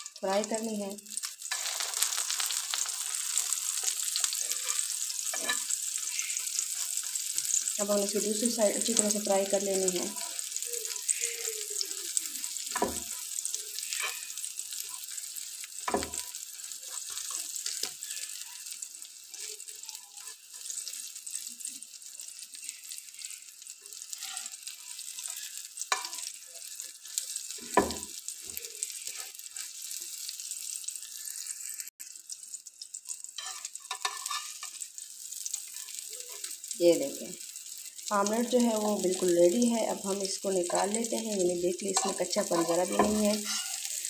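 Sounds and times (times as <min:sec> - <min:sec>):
omelette sizzling in oil: 0:00.0 - 0:44.0
metal spatula knocking pan: 0:42.0 - 0:43.6.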